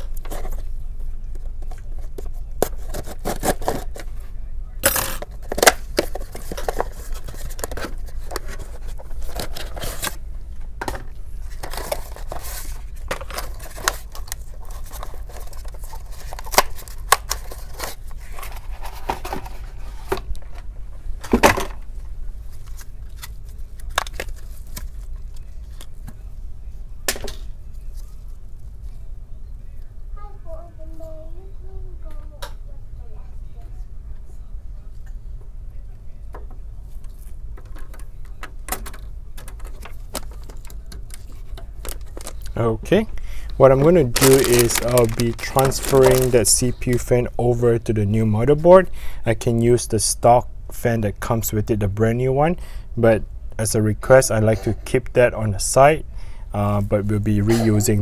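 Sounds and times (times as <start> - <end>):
steady low hum: 0.0 - 58.0
cardboard box unpacking: 41.8 - 42.5, 43.8 - 46.5.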